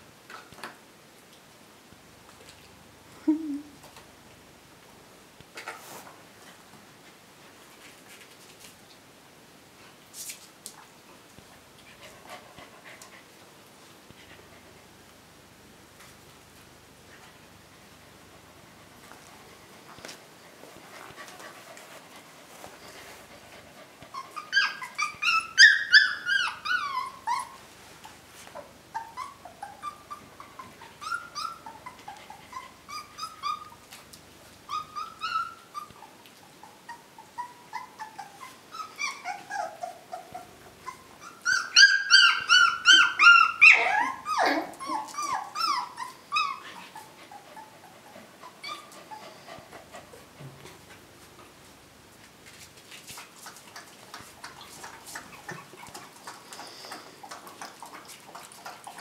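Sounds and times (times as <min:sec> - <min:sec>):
puppies whimpering and yelping: 0:24.0 - 0:27.7, 0:28.6 - 0:34.0, 0:34.6 - 0:50.3
puppies squealing rapidly: 0:24.2 - 0:27.6, 0:29.0 - 0:33.8, 0:37.4 - 0:47.0.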